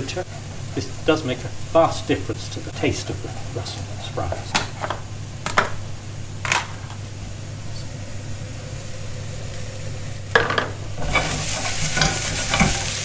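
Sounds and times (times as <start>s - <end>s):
vegetables sizzling in a pan: 0.0s - 13.0s
utensil clattering against pan: 10.4s - 13.0s.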